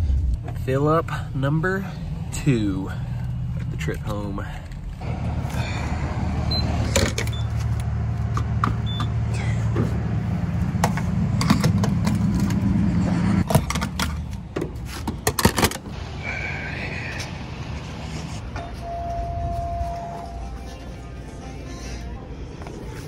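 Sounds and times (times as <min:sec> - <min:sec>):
fuel pump humming: 0:02.9 - 0:12.6
short pump beeps: 0:06.5 - 0:07.6, 0:08.8 - 0:09.1, 0:18.6 - 0:20.5
clicks and clunks: 0:13.4 - 0:15.9.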